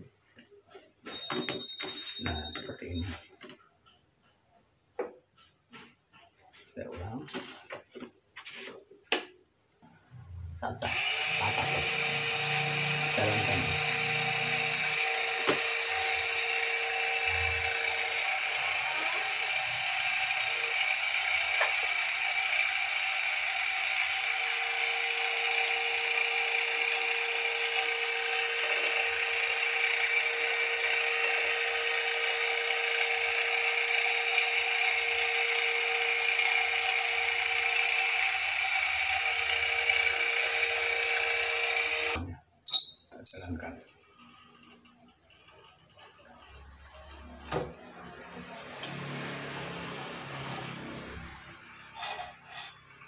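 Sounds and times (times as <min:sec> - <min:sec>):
glue machine motor hum: 0:10.8 - 0:42.2.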